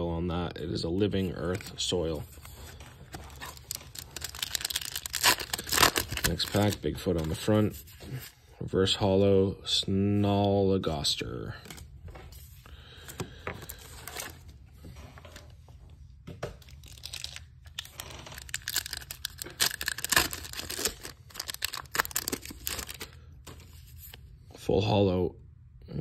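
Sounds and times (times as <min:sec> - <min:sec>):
wrapper crinkling: 0:01.4 - 0:07.5, 0:16.6 - 0:24.1
booster pack wrapper tearing: 0:03.1 - 0:07.5, 0:16.6 - 0:23.2.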